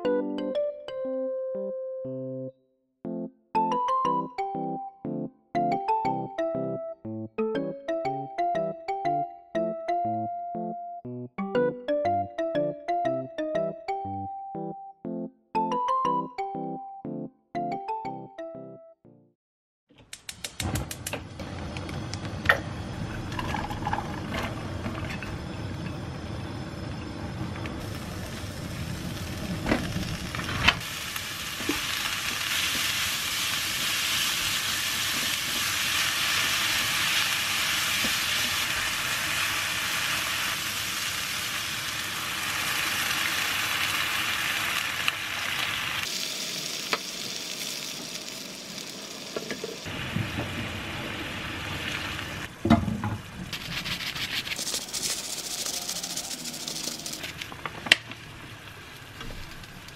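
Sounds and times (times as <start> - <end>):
water pouring into pan: 23.3 - 24.4
vegetables and meat sizzling in wok: 24.1 - 59.9.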